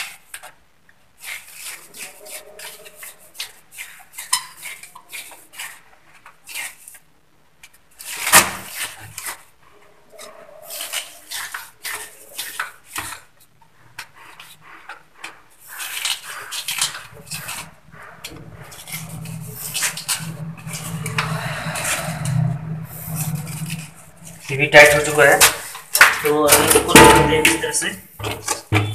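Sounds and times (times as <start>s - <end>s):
low steady hum: 16.9s - 25.7s.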